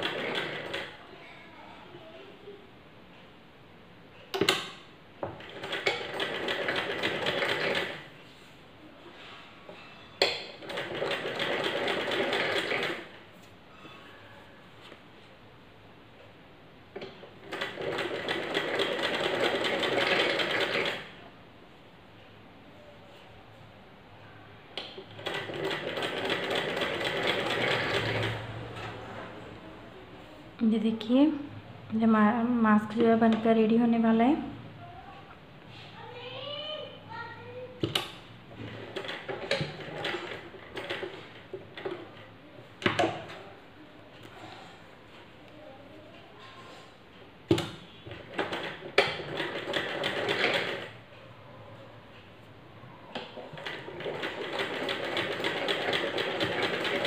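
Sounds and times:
sewing machine stitching: 0:00.0 - 0:00.9, 0:05.4 - 0:08.1, 0:10.5 - 0:13.1, 0:17.0 - 0:21.1, 0:24.9 - 0:28.6, 0:38.5 - 0:42.2, 0:48.1 - 0:51.0, 0:53.2 - 0:57.0.

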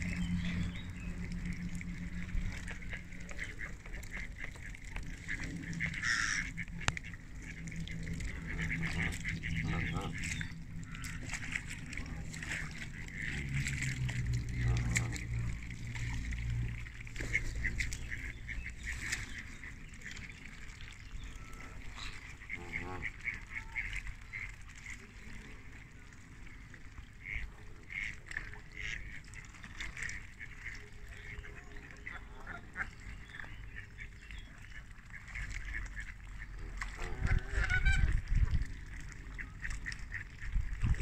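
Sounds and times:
geese honking: 0:00.0 - 0:20.2, 0:21.3 - 0:24.5, 0:35.1 - 0:38.3
low rumble: 0:00.0 - 0:22.9, 0:35.5 - 0:41.0
ducks quacking: 0:00.0 - 0:25.6, 0:27.1 - 0:41.0.

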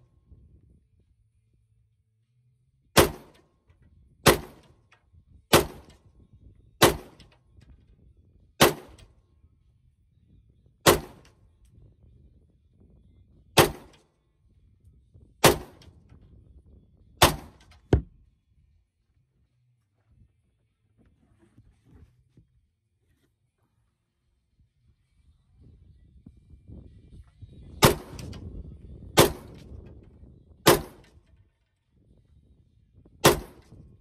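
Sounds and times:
gunshots with ringing tail: 0:03.0 - 0:03.4, 0:04.2 - 0:04.7, 0:05.5 - 0:05.9, 0:06.8 - 0:07.3, 0:08.6 - 0:09.1, 0:10.8 - 0:11.3, 0:13.6 - 0:14.0, 0:15.4 - 0:15.9, 0:17.2 - 0:17.8, 0:27.8 - 0:28.4, 0:29.2 - 0:29.7, 0:30.6 - 0:31.1, 0:33.2 - 0:33.7.

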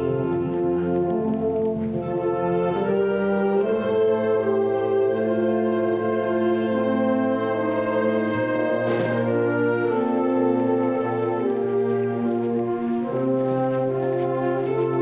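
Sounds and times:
wind band playing sustained chords: 0:00.0 - 0:15.0.

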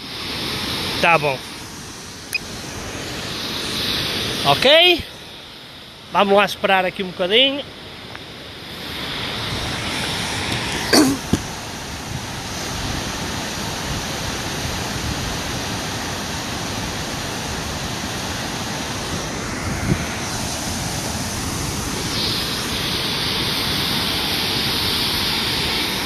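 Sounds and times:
waterfall rushing: 0:00.0 - 0:06.4, 0:15.4 - 0:26.0.

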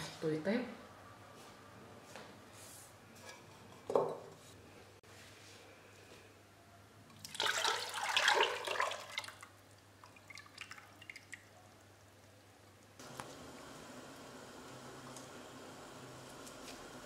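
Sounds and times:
liquid dripping: 0:07.1 - 0:12.9
liquid pouring into metal pot: 0:07.2 - 0:11.6.

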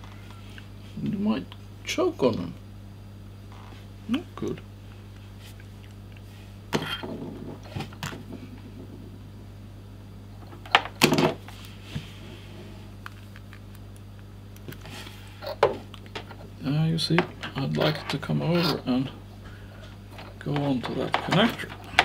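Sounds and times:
steady low hum: 0:00.0 - 0:22.0
cables rustling: 0:11.4 - 0:22.0.

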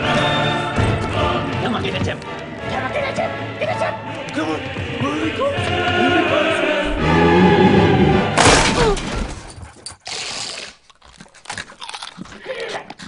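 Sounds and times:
dramatic music: 0:00.0 - 0:09.0
door crashing down: 0:08.3 - 0:09.6.

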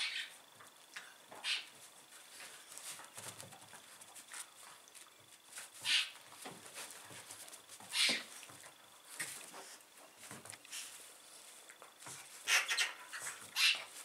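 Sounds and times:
dogs scuffling on carpet: 0:01.8 - 0:12.5.

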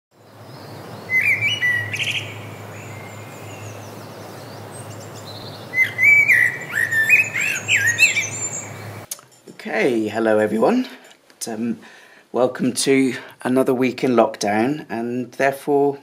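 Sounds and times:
bird chirping whistles: 0:01.0 - 0:04.1, 0:04.8 - 0:08.8.

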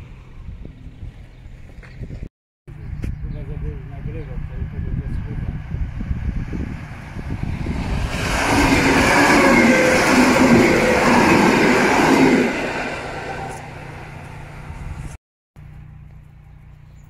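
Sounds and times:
electric train passing: 0:04.6 - 0:15.2.

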